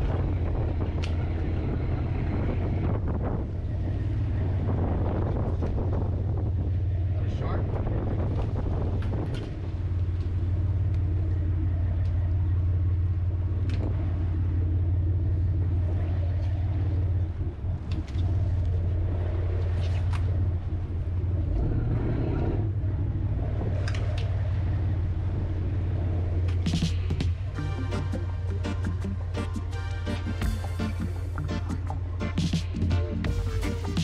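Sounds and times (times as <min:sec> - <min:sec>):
boat engine humming: 0:00.0 - 0:34.0.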